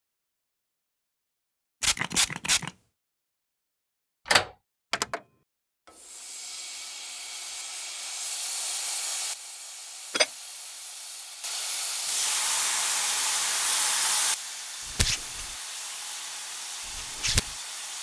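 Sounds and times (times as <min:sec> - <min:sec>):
food sizzling in a pan: 0:05.9 - 0:18.0.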